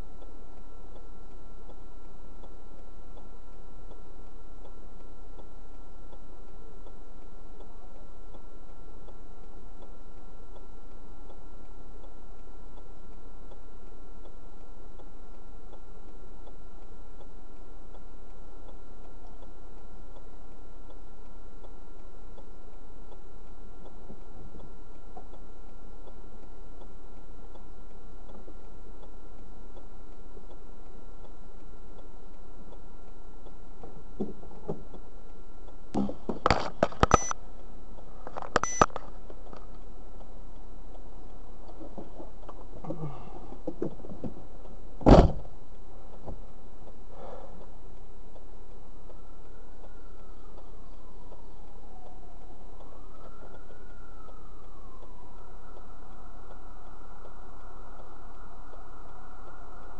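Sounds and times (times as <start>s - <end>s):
steady hum and hiss: 0.0s - 59.9s
car door shutting thump: 45.0s - 45.4s.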